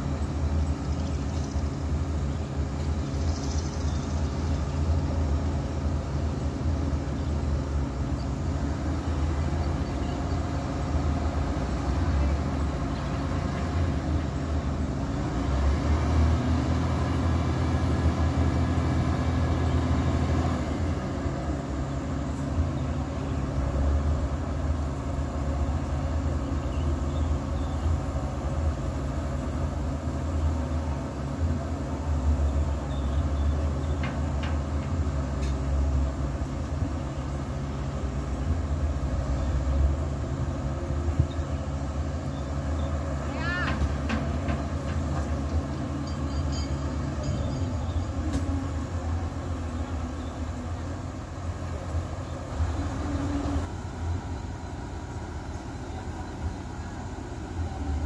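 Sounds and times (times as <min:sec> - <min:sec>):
heavy machinery engine droning: 0:00.0 - 0:58.0.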